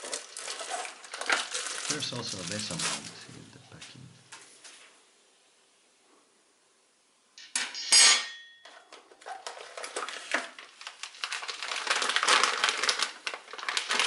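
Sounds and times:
plastic bag crinkling: 0.0 - 3.4, 8.9 - 14.0
metal plate clanking on table: 7.4 - 8.8.

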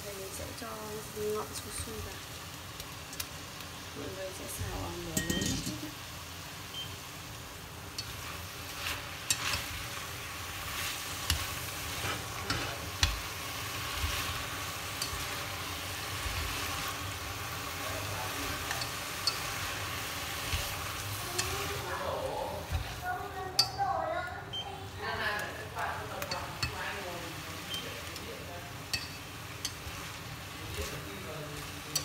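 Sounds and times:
greens sizzling in a pot: 0.0 - 32.0
chopsticks clicking against pot: 18.4 - 19.7, 27.7 - 29.9, 31.6 - 32.0.

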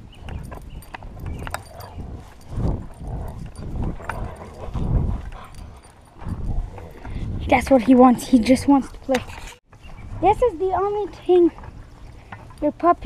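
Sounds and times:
dog pulling rope toy: 0.2 - 8.1.

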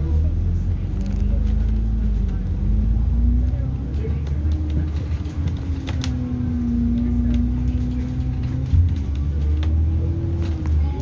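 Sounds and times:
bus engine rumble and whine: 0.0 - 11.0
body rattles and clicks: 3.4 - 11.0.

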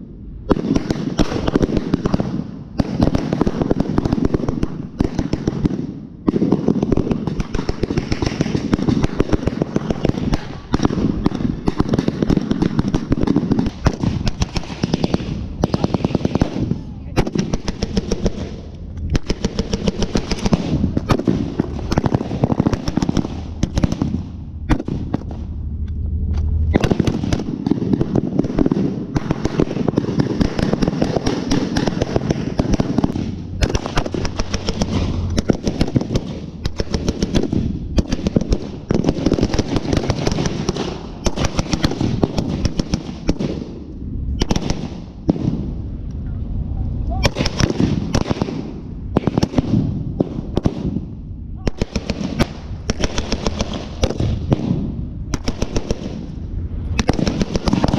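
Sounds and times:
automatic gunfire bursts: 0.5 - 25.0.

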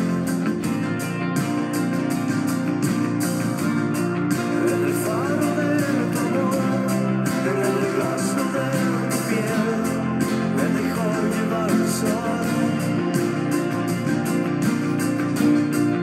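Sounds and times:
acoustic guitar strumming: 0.0 - 16.0
person singing wordless melody: 4.5 - 13.2.

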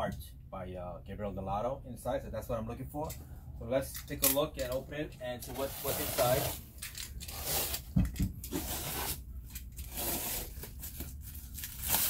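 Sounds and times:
plastic wrap tearing and crinkling: 9.8 - 12.0.

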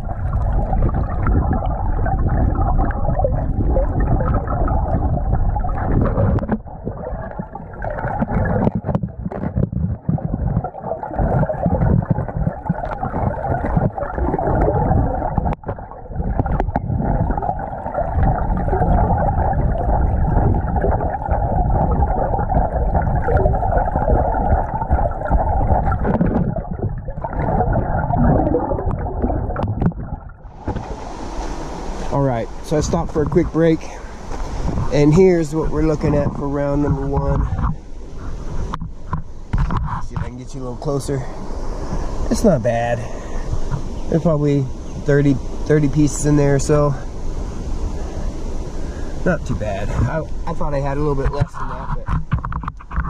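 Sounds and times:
underwater rushing water: 0.0 - 53.0
knocks on submerged rock: 8.1 - 10.7, 25.2 - 27.8, 28.9 - 30.9, 38.7 - 40.3, 51.4 - 53.0
wind hiss: 30.4 - 51.6.

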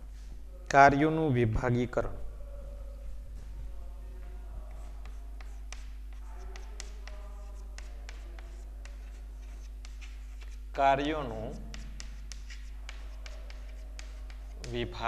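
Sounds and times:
chalk tapping and scraping on chalkboard: 4.2 - 15.0.

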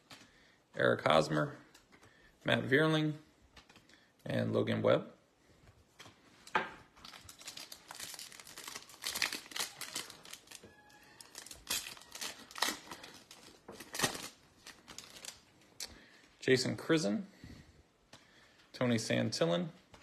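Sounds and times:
foil wrapper crinkling and tearing: 7.0 - 15.5.

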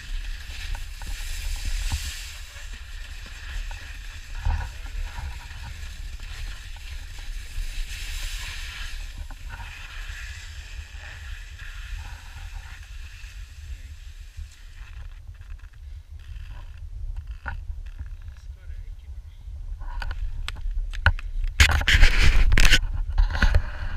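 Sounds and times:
skis hissing over snow: 0.0 - 15.0
steady low rumble: 0.0 - 21.6.

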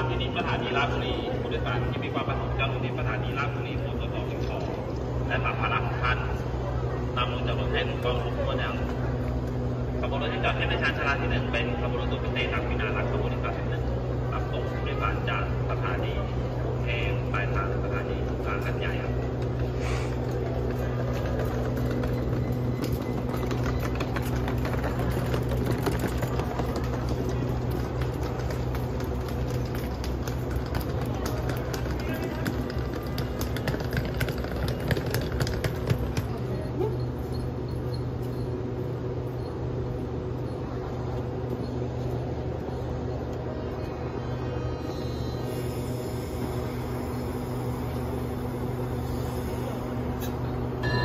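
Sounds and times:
train diesel engine hum: 0.0 - 51.0
suitcase wheels rolling over paving: 20.4 - 36.4.

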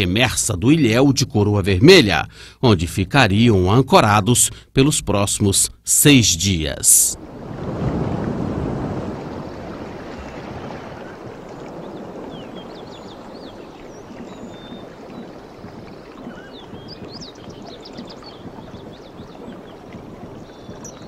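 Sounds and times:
small birds chirping: 9.2 - 21.0.

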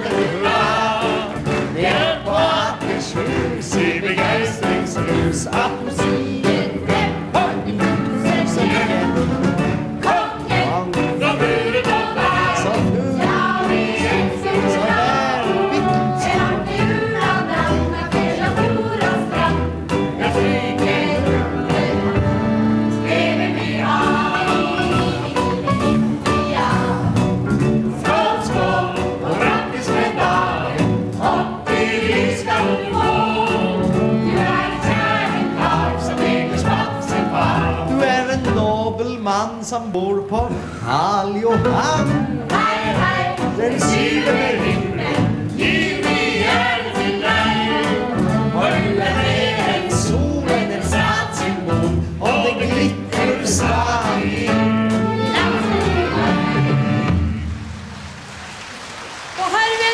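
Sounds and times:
group of voices singing: 0.0 - 39.2, 40.5 - 57.2
band accompaniment: 0.0 - 59.9
person singing: 7.4 - 9.7, 12.6 - 13.4, 14.6 - 16.2.

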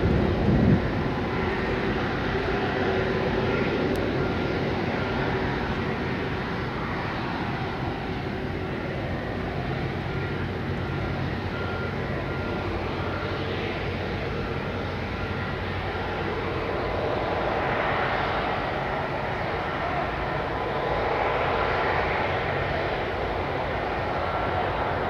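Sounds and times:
faint steady engine whine: 0.0 - 25.0
jet engines running: 0.0 - 25.0.

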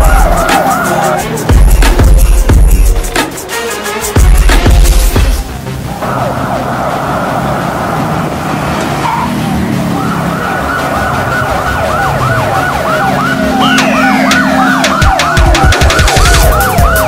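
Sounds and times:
electronic sirens yelping: 0.0 - 2.2, 5.9 - 17.0.

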